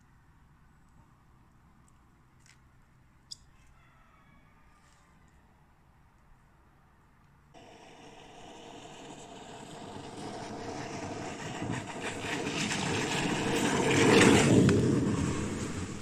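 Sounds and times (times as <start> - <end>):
longboard wheels rolling on asphalt: 7.6 - 16.0.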